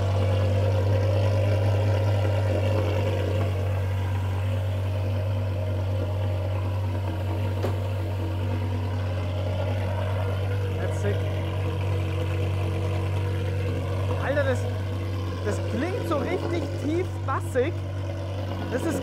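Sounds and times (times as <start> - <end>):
car engine idling deep tone: 0.0 - 19.0.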